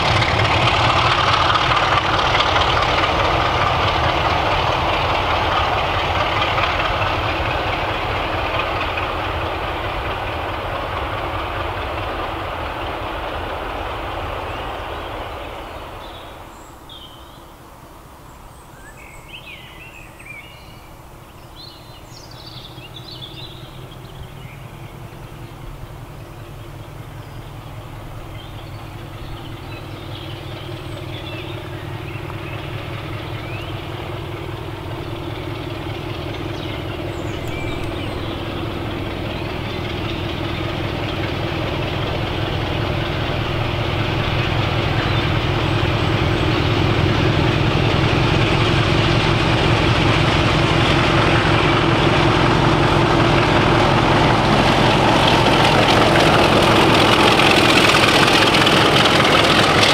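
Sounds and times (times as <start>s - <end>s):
diesel locomotives running: 0.0s - 59.9s
distant diesel engine: 0.0s - 59.9s
birds chirping: 14.0s - 59.9s.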